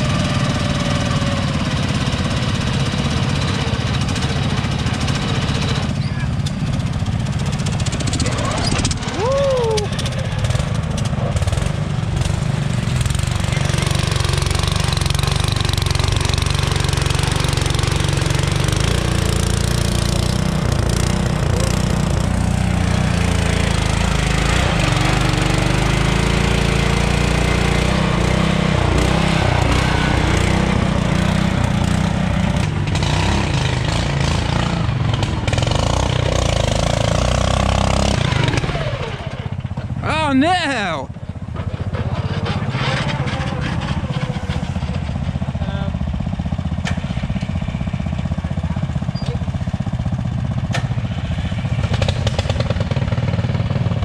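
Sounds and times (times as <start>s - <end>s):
garden tractor engines under load: 0.0s - 54.0s.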